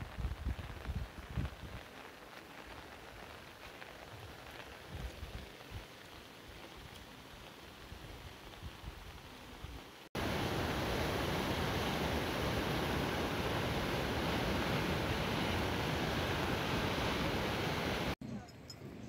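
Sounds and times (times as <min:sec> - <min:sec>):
river white water rushing: 0:10.2 - 0:18.2.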